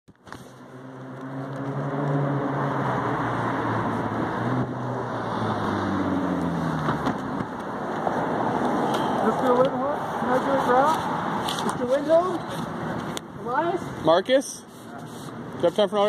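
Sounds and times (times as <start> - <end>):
rushing street noise: 0.1 - 16.0.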